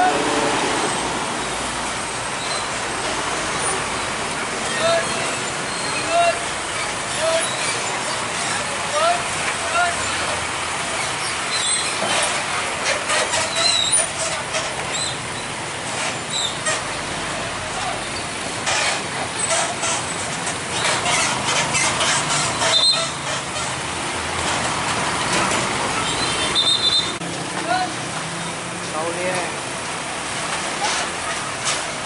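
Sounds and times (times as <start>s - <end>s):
vehicle engines: 0.0s - 32.0s
short high squeals: 2.4s - 2.8s, 4.6s - 10.3s, 10.9s - 15.5s, 16.2s - 17.0s, 20.8s - 23.8s, 26.0s - 27.2s.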